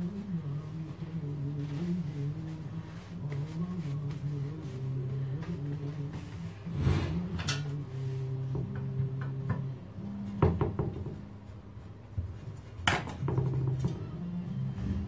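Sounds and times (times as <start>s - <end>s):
soft background music: 0.0s - 15.0s
tools knocking on wooden workbench: 10.4s - 11.2s, 12.9s - 14.0s.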